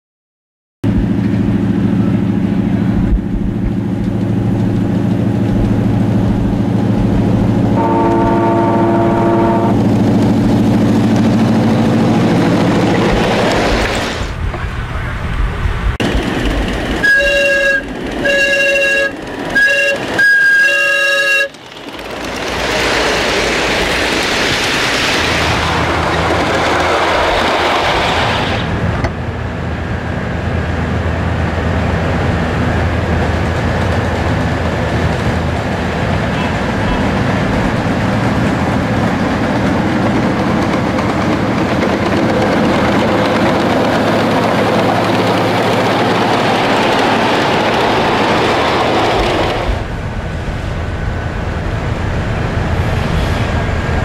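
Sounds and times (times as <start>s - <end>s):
rushing noise: 0.8s - 20.8s, 21.4s - 54.0s
train whistle toots: 7.8s - 9.8s, 17.0s - 21.6s
miniature steam train running: 16.0s - 28.6s, 33.8s - 50.0s.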